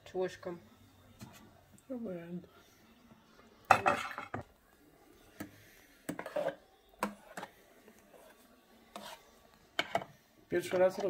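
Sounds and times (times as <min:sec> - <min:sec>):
kitchen utensils clicking and knocking: 0:03.7 - 0:04.5, 0:09.8 - 0:11.0.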